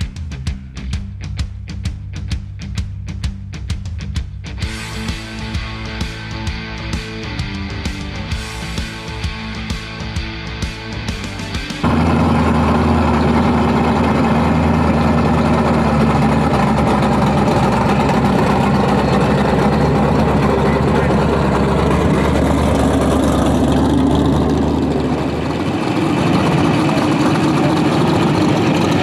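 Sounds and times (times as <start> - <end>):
car engine idling: 4.6 - 29.0
hot rod engine approaching: 4.6 - 29.0.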